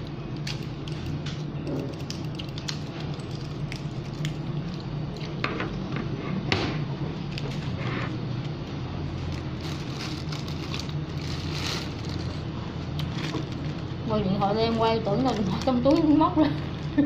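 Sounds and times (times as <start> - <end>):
low steady hum: 0.0 - 17.0
plastic bag crinkling: 9.1 - 13.9.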